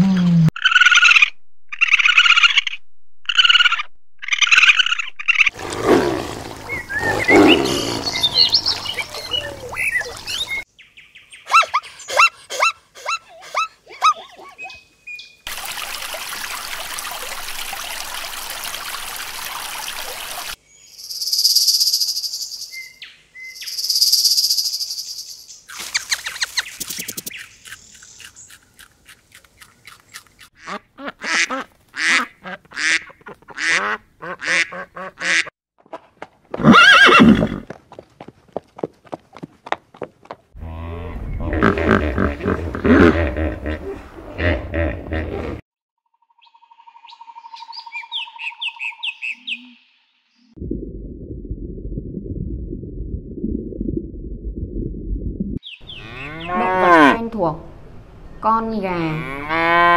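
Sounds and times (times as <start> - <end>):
ducks quacking: 30.6 - 35.5.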